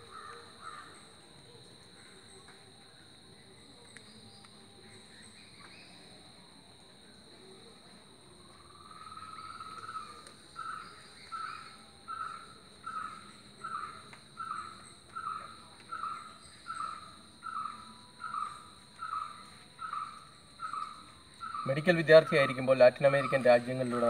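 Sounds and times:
high-pitched insect drone: 8.5 - 24.0.

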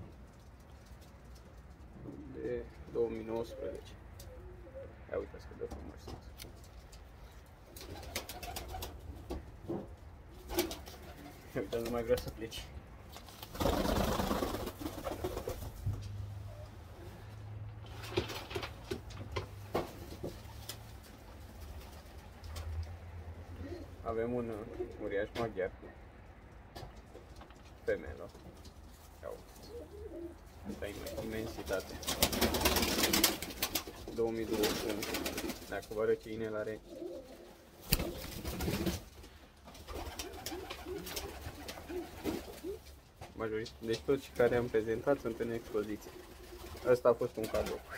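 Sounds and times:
pigeons cooing: 1.9 - 5.2, 23.4 - 24.0, 29.3 - 31.4, 36.8 - 38.8, 39.9 - 42.9
wing flapping and rustling: 5.8 - 17.2, 17.8 - 23.0, 26.9 - 47.9.

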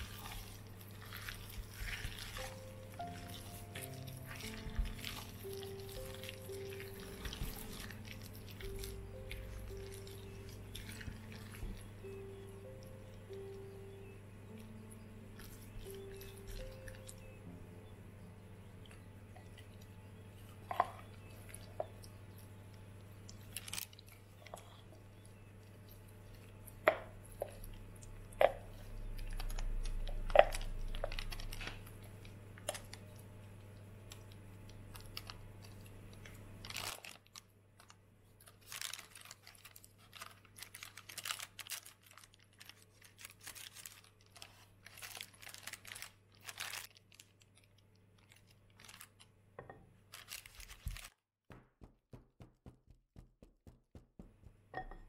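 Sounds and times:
baking paper crinkling: 0.0 - 13.5, 20.4 - 27.3, 28.4 - 49.4, 50.0 - 51.2.

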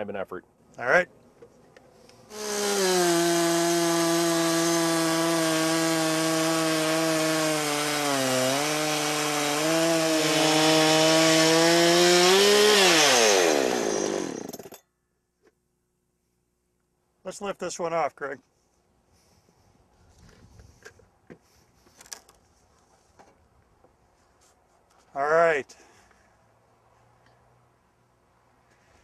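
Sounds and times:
chainsaw ripping through log: 2.3 - 14.8.

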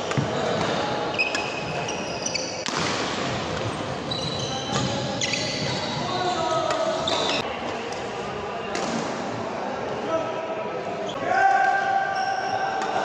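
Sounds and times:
shoes squeaking on wooden floor: 0.1 - 2.6, 3.6 - 7.4.

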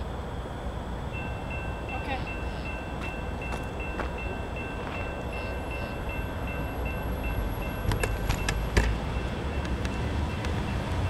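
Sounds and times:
crossing warning bell ringing: 0.0 - 11.0
train rumble: 0.0 - 11.0
sharp clicks or knocks: 7.8 - 9.0.

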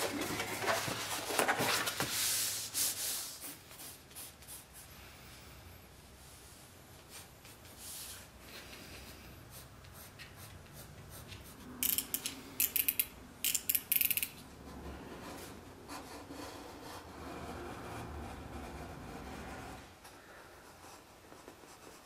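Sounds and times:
pencil scratching on paper: 14.7 - 19.8.

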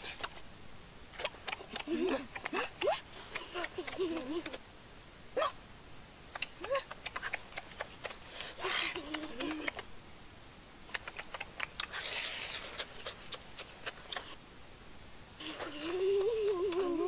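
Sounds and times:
chewing and lip-smacking: 1.2 - 4.6, 6.4 - 9.9, 10.9 - 14.4, 15.4 - 16.9
person humming mmm: 8.3 - 9.8, 15.4 - 17.0.

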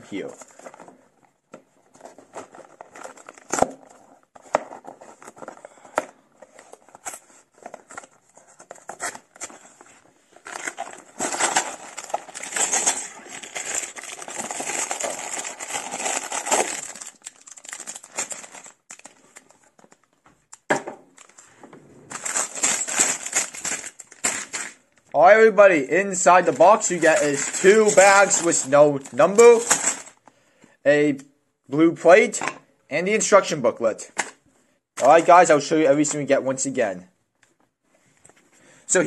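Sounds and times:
plastic bags crinkling: 10.4 - 20.0, 22.1 - 24.9, 26.0 - 30.2.

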